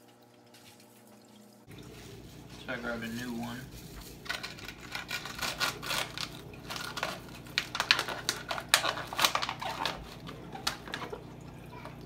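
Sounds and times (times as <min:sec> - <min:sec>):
plastic bottle crinkling: 0:03.1 - 0:11.3.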